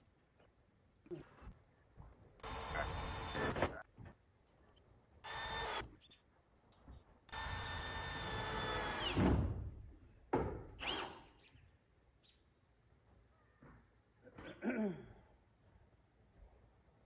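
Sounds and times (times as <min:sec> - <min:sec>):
power drill driving screws into metal: 0:10.8 - 0:11.3.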